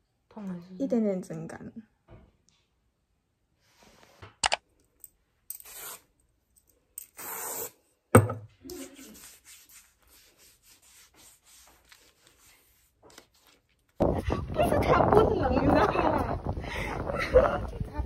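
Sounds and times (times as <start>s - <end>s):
hands rubbing skin: 8.7s - 13.9s.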